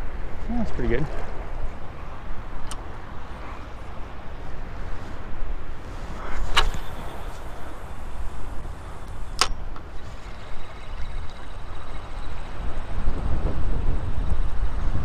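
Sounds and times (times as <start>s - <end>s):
wind on microphone: 0.0s - 15.0s
fishing rod cast clicks: 2.6s - 2.9s, 6.4s - 7.5s, 9.0s - 9.9s
fishing reel whirring: 6.5s - 14.5s.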